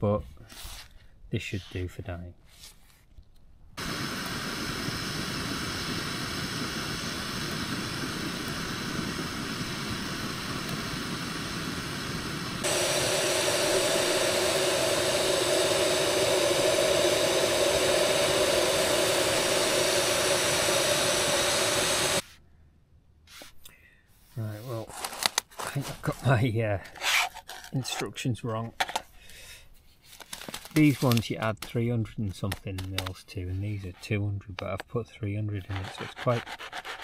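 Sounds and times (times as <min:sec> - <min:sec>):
camping stove hissing: 0:03.8 - 0:22.2
low hum: 0:03.8 - 0:22.2.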